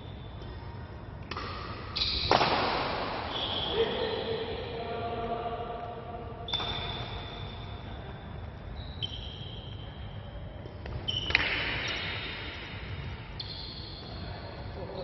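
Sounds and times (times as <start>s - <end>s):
large hall ambience: 0.0s - 15.0s
racket hitting shuttlecock: 1.3s - 3.3s, 10.8s - 12.5s.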